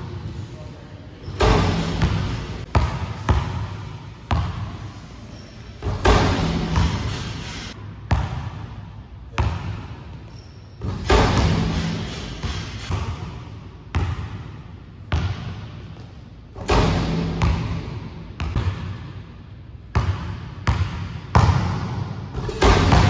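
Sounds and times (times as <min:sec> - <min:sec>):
basketball bouncing on gym floor: 0:01.2 - 0:05.1, 0:05.8 - 0:07.4, 0:08.0 - 0:23.0
basketball rim slammed: 0:01.3 - 0:03.6, 0:05.8 - 0:08.5, 0:10.8 - 0:13.4, 0:16.6 - 0:18.8, 0:20.8 - 0:23.0.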